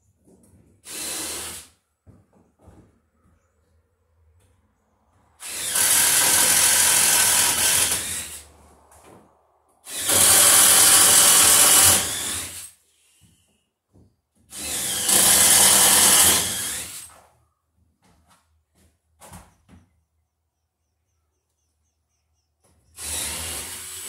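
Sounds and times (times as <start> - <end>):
power drill boring into wood: 0.8 - 1.8, 5.4 - 8.4, 9.8 - 12.8, 14.5 - 17.1, 23.0 - 24.0.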